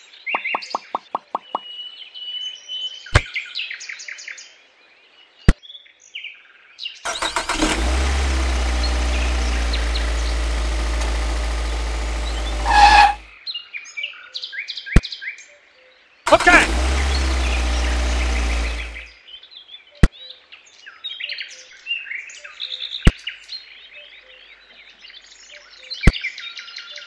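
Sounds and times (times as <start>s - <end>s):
birds chirping: 7.1s - 13.2s, 16.6s - 19.1s
tractor engine running: 7.1s - 13.3s, 16.3s - 19.1s.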